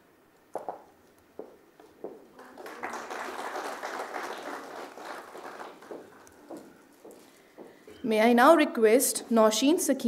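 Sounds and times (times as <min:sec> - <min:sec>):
audience applauding: 0:02.4 - 0:06.6.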